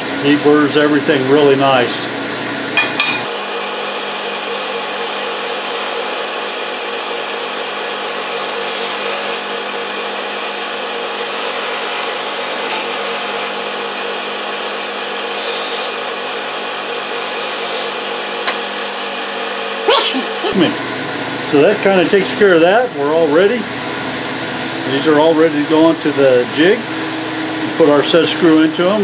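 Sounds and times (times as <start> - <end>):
bench grinder humming: 1.4 - 22.2.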